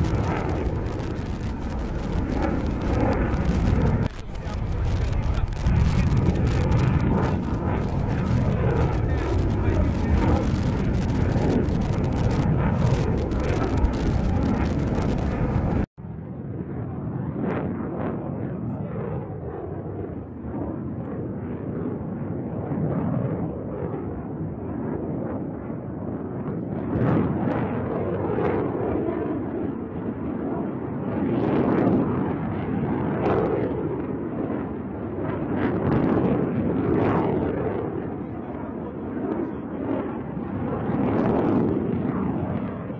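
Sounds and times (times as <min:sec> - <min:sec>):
rocket motor rumble: 0:00.0 - 0:15.9.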